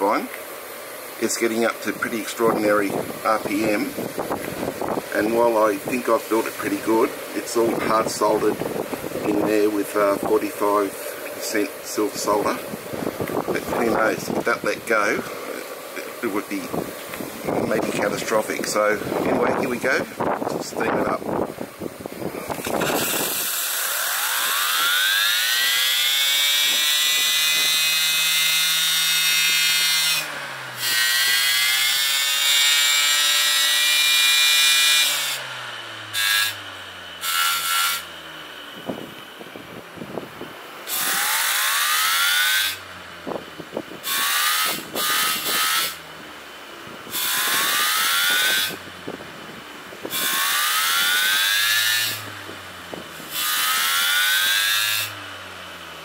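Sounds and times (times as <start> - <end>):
steam turbine whine: 0.0 - 32.8, 34.3 - 53.9
steam hiss: 22.6 - 24.2.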